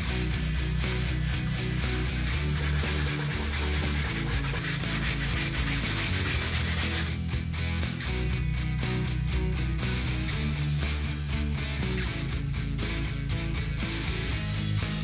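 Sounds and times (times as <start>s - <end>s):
sandpaper rubbing on wood: 0.0s - 7.1s
rock music: 0.0s - 15.0s.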